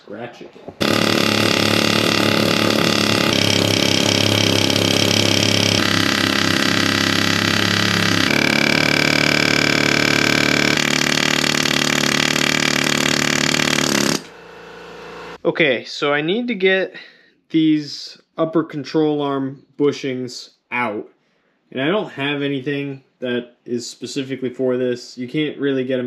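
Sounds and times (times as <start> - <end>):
pneumatic air hammer hammering on steel: 0.8 - 14.4.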